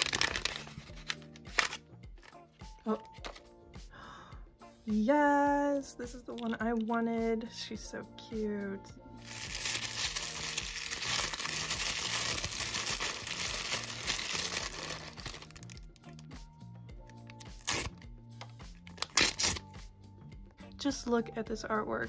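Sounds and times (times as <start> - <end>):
plastic packaging crinkling and tearing: 0.0 - 2.3, 9.2 - 15.9, 17.3 - 18.0, 18.9 - 19.6
background music: 0.0 - 22.0.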